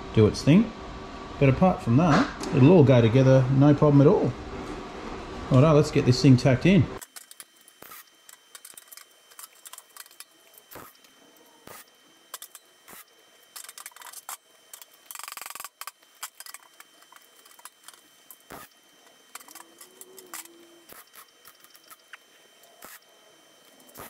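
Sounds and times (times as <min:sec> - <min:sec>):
rough burst of welding: 0:07.0 - 0:22.1, 0:22.8 - 0:23.1, 0:23.8 - 0:24.0.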